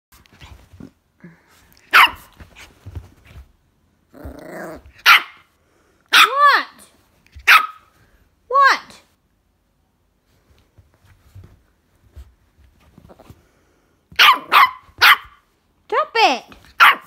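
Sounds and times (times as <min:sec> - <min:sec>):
high yelping bark: 0:01.9 - 0:02.3, 0:05.0 - 0:05.5, 0:06.1 - 0:06.6, 0:07.4 - 0:07.9, 0:14.2 - 0:15.4, 0:16.8 - 0:17.0
puppy barking: 0:01.9 - 0:02.4, 0:05.0 - 0:05.5, 0:06.1 - 0:06.5, 0:07.4 - 0:07.9, 0:14.2 - 0:15.4, 0:16.8 - 0:17.0
puppy growling: 0:04.1 - 0:05.0.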